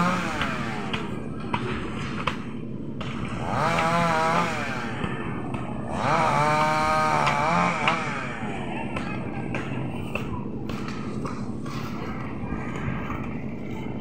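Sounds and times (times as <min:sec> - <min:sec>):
small engine revving: 0:00.0 - 0:01.2, 0:03.1 - 0:09.1.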